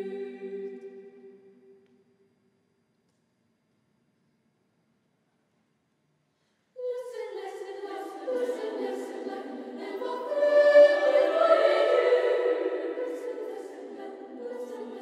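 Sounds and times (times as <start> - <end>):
children's choir singing: 0.0 - 1.4, 6.8 - 15.0.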